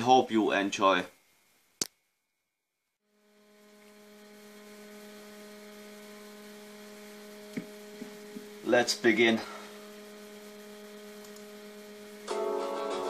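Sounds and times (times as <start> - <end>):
electrical hum: 3.0 - 13.0.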